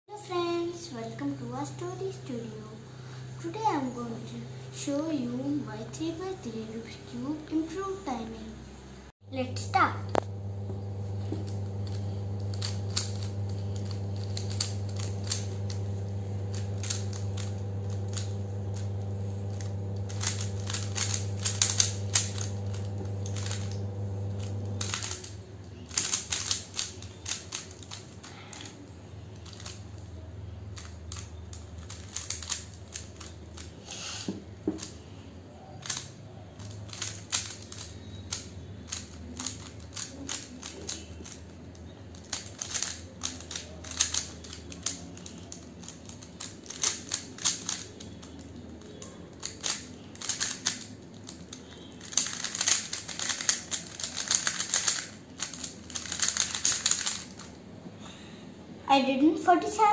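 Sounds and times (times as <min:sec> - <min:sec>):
faint low hum: 0:00.1 - 0:59.9
puzzle cube clicking: 0:11.1 - 0:35.0, 0:35.8 - 0:57.6.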